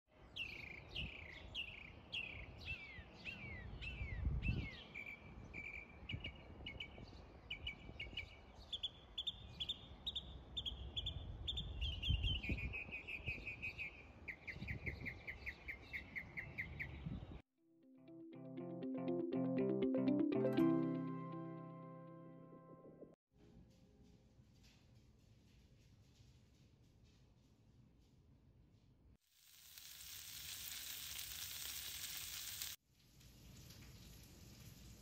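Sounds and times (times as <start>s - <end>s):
songbird singing: 0.2s - 17.4s.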